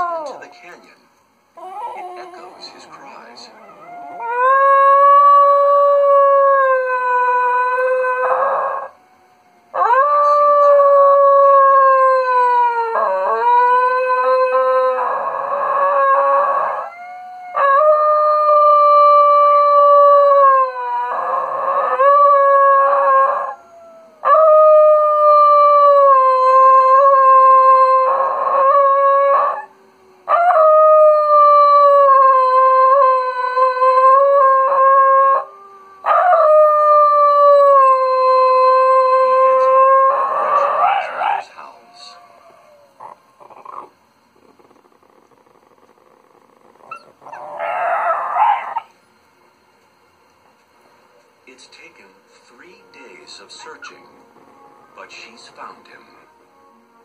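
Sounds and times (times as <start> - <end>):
dog howling: 0.0 - 1.0, 1.6 - 48.9.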